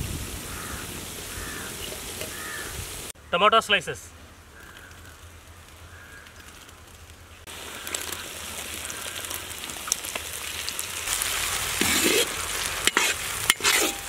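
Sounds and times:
vegetables sizzling in oil: 0:00.0 - 0:03.1, 0:07.4 - 0:14.0
metal spatula scraping a pan: 0:11.8 - 0:14.0.

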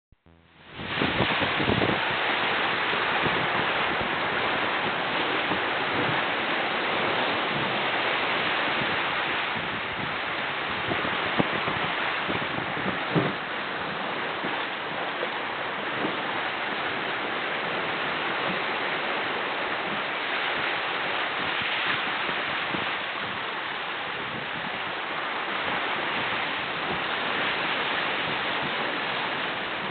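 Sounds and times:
wind on microphone: 0:00.3 - 0:29.9
water rushing along a hull: 0:00.6 - 0:29.9.

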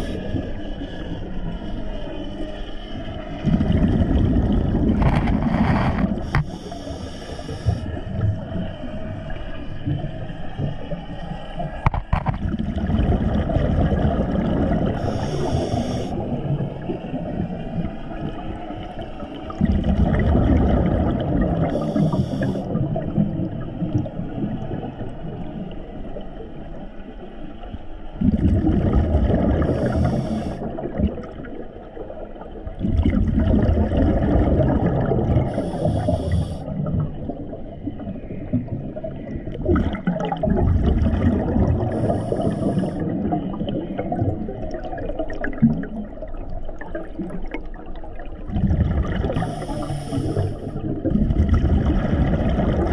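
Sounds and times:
diver breathing through regulator: 0:04.9 - 0:08.2, 0:14.8 - 0:16.5, 0:21.6 - 0:22.8, 0:29.4 - 0:30.9, 0:35.4 - 0:36.8, 0:41.8 - 0:43.4, 0:49.1 - 0:50.9.

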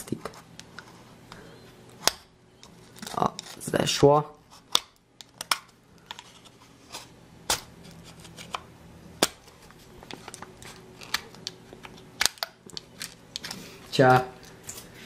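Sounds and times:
plastic snaps: 0:10.1 - 0:13.6.

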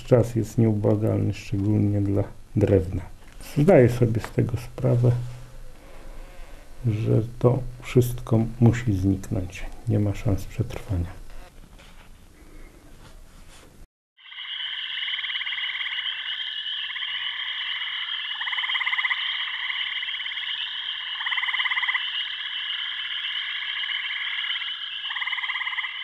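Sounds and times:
frogs croaking: 0:14.2 - 0:26.0
frogs trilling drone: 0:14.2 - 0:26.0.

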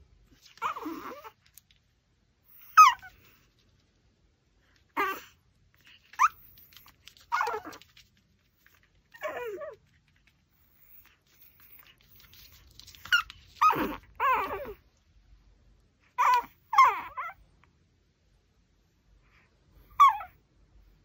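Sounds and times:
puppy whining and yipping: 0:00.3 - 0:01.4, 0:02.5 - 0:03.4, 0:04.9 - 0:08.0, 0:08.6 - 0:09.9, 0:10.8 - 0:14.8, 0:16.1 - 0:17.4, 0:19.8 - 0:20.4.

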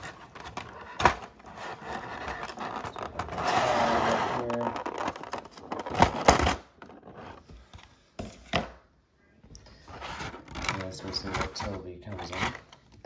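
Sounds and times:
plastic blister tray crinkling: 0:04.4 - 0:07.2.

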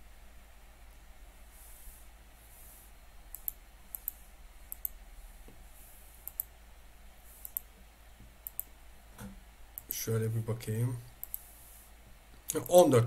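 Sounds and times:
faint steady hiss: 0:00.0 - 0:13.0
computer mouse clicks: 0:03.3 - 0:05.0, 0:06.2 - 0:06.5, 0:07.4 - 0:07.7, 0:08.4 - 0:08.7, 0:11.2 - 0:11.5.

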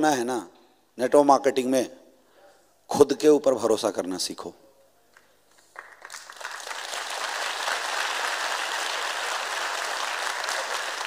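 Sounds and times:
large audience applauding: 0:05.6 - 0:11.0.

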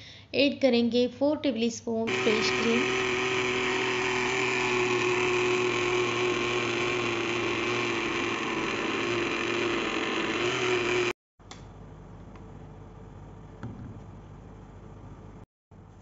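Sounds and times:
blender motor running: 0:02.1 - 0:11.2.

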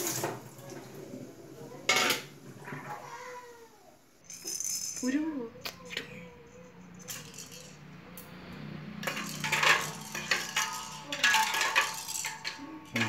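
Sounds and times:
metal tongs clinking on steel bowl: 0:07.0 - 0:07.8, 0:09.0 - 0:13.0
plastic rattling: 0:09.0 - 0:13.0.

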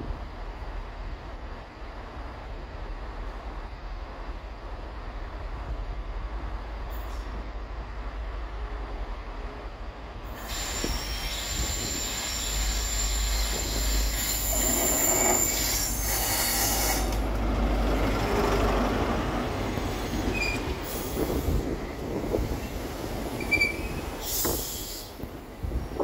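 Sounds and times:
train running noise: 0:00.0 - 0:26.0
high-pitched wheel squeal: 0:10.4 - 0:17.1, 0:20.3 - 0:20.7, 0:23.4 - 0:25.1.

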